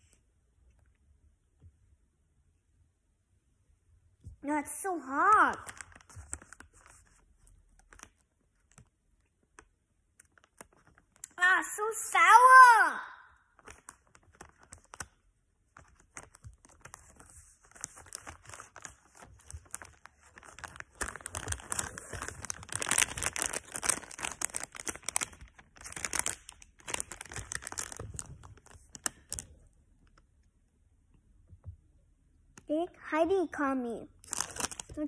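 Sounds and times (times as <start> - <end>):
plastic candy packaging crinkling: 4.8 - 11.5, 13.4 - 30.3, 34.2 - 35.0
plastic tearing: 5.6 - 7.1, 9.6 - 11.4, 13.6 - 15.2, 15.8 - 29.6, 34.2 - 35.0.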